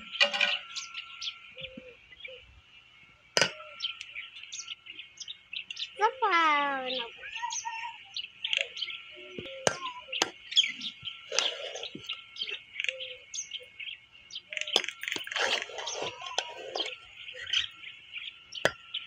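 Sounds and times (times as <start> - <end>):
birds chirping: 0.0 - 19.0
steel ladle scraping a pot: 11.3 - 12.1, 14.8 - 17.5.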